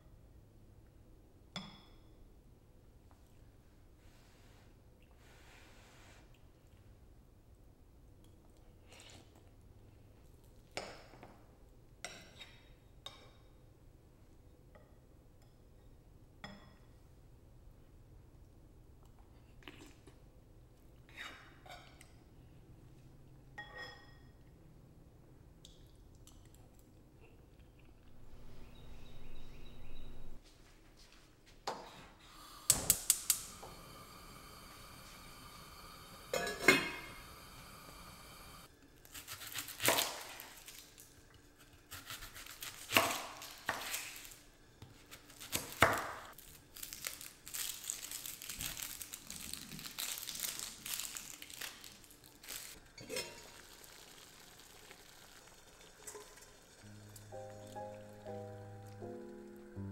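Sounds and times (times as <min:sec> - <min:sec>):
burning gas hissing: 0:32.2 - 0:38.7
metal spoon clinking on ceramic bowls: 0:36.4 - 0:37.2.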